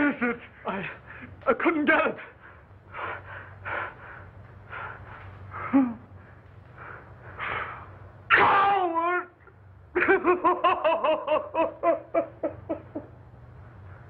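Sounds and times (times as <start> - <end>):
man breathing heavily: 2.3 - 8.1
man laughing loudly: 10.0 - 13.2.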